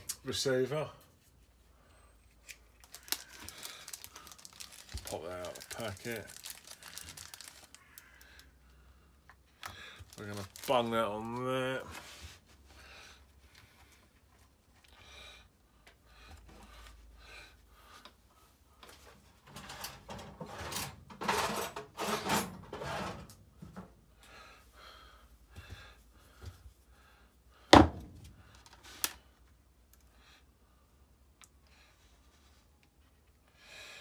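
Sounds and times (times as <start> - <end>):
plastic sheet rustling: 2.8 - 7.8, 10.1 - 11.4.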